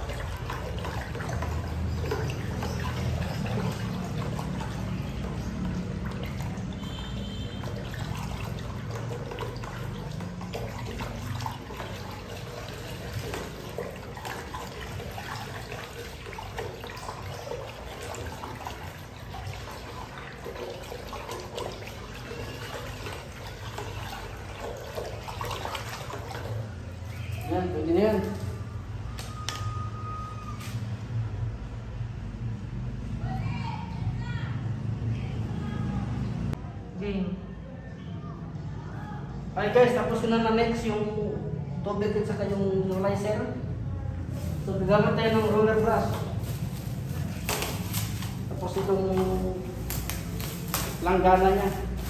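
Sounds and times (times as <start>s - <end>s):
liquid sloshing in a bucket: 0.0s - 29.8s, 42.9s - 52.0s.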